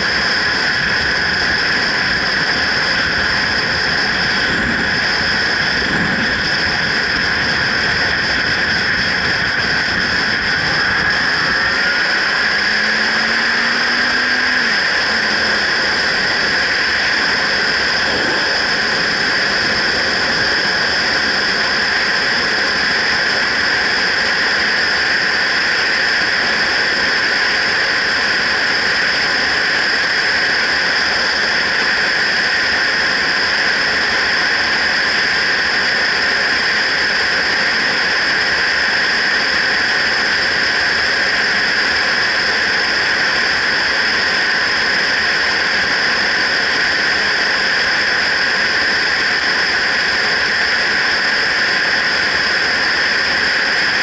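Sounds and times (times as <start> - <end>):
motorcycle road noise: 0.0 - 54.0
wind rushing: 3.2 - 22.1.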